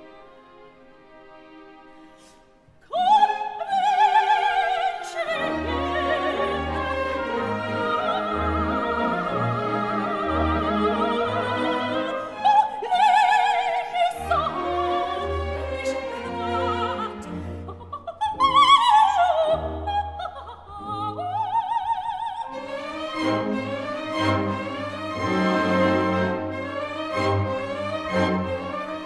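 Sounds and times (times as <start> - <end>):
orchestra: 0.0 - 29.0
operatic high voice singing: 2.8 - 23.0.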